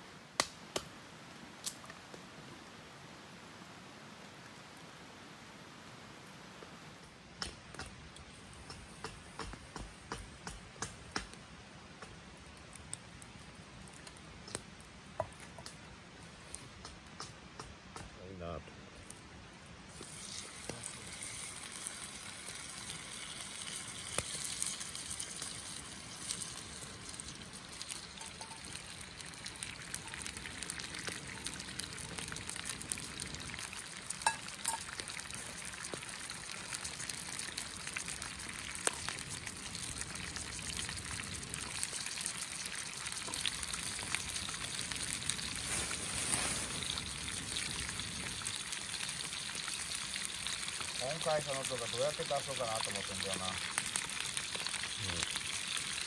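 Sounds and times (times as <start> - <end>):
meat sizzling in a frying pan: 19.9 - 56.0.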